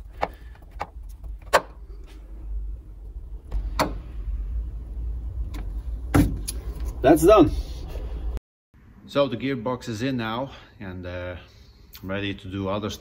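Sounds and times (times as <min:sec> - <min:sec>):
low steady rumble: 0:01.0 - 0:09.1.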